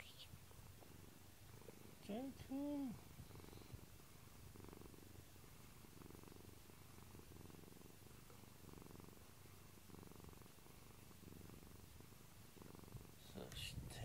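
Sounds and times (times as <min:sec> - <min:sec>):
cat purring: 0:00.0 - 0:14.0.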